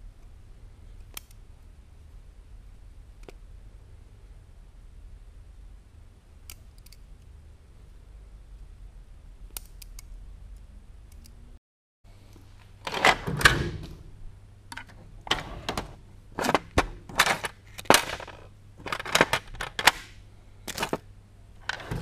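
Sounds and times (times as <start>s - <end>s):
metal drawers clacking and rattling: 12.9s - 14.0s, 14.8s - 20.0s, 21.6s - 22.0s.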